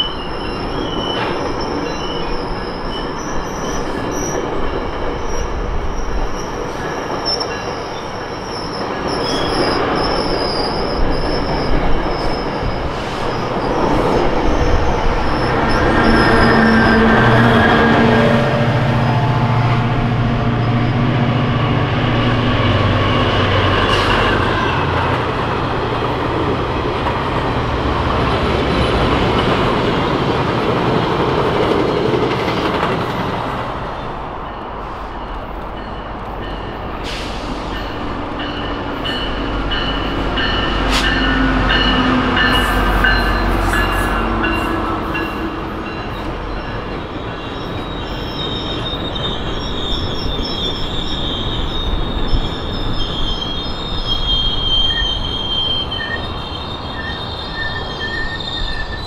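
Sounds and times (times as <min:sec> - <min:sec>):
steel wheels squealing: 0:00.0 - 0:19.3, 0:34.0 - 0:59.0
diesel locomotive rumbling: 0:00.0 - 0:59.0
train coaches rolling past: 0:00.0 - 0:59.0.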